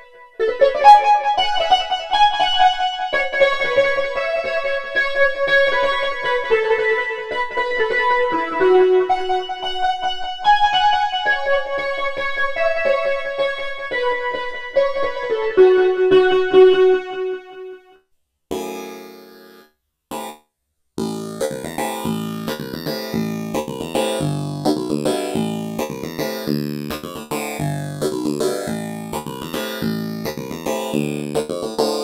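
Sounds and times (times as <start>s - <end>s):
synthesizer electric piano chords: 18.5s - 20.4s, 21.0s - 32.0s.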